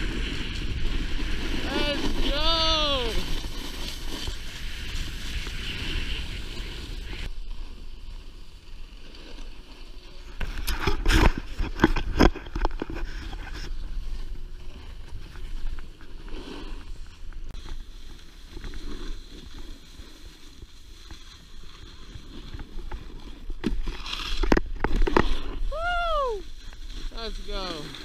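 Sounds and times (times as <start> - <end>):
snowboard scraping on snow: 0.0 - 28.0
person calling out: 1.6 - 3.3, 25.7 - 26.4.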